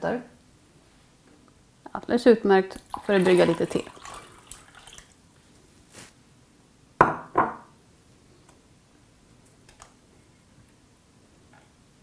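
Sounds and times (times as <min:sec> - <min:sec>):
glass bowl knocking on hard surface: 0:07.0 - 0:07.7.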